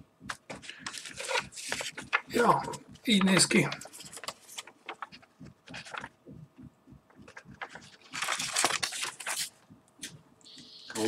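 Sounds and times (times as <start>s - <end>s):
packaging rustling: 0.4s - 6.2s, 7.2s - 10.2s.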